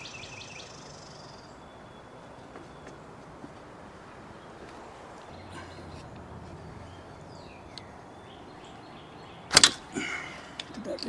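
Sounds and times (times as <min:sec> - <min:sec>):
faint bird chirps: 0:00.0 - 0:03.2.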